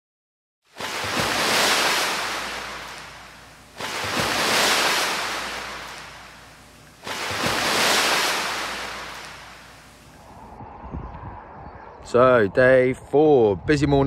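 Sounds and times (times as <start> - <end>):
sea waves breaking: 0.7 - 10.2.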